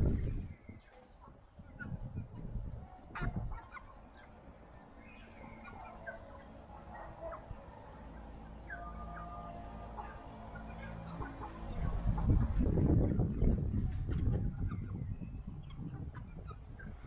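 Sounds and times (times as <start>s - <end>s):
hens clucking: 0.0s - 17.0s.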